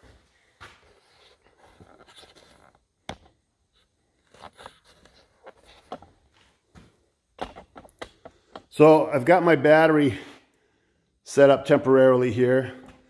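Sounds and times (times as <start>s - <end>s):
camera handling scraping and rustling: 4.2s - 6.4s.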